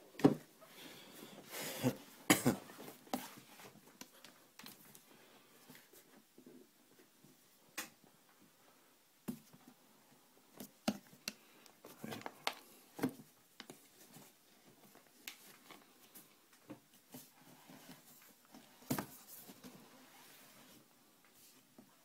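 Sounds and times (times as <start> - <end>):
soft rustles: 11.8 - 22.0.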